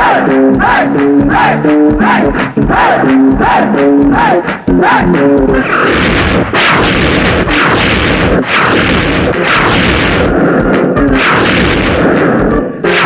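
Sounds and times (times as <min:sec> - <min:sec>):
dense rushing noise: 0:04.9 - 0:12.5
explosion-like booms: 0:05.5 - 0:12.6.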